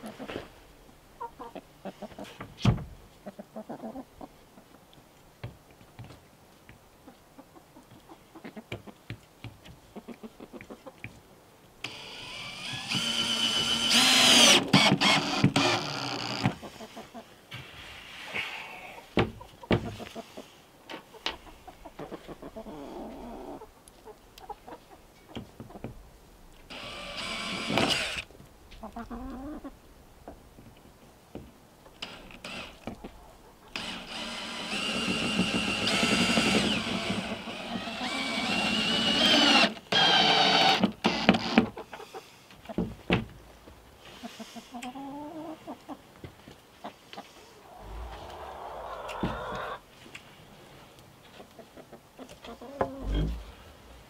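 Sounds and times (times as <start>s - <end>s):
chickens clucking: 0.0s - 5.3s, 6.9s - 11.3s, 15.5s - 17.4s, 18.3s - 26.6s, 28.7s - 30.9s, 31.8s - 34.1s, 41.6s - 43.0s, 44.0s - 50.4s, 51.1s - 54.0s
cordless drill driving screws: 11.8s - 16.4s, 26.7s - 28.2s, 33.8s - 41.6s.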